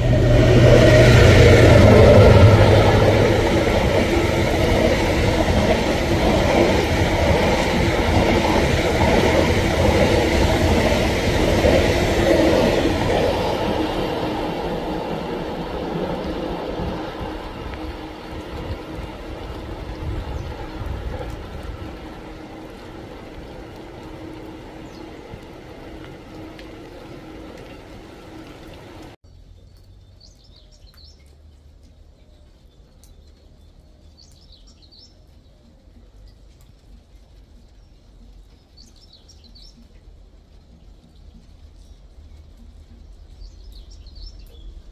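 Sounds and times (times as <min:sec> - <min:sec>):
freight train rolling past: 0:00.0 - 0:29.2.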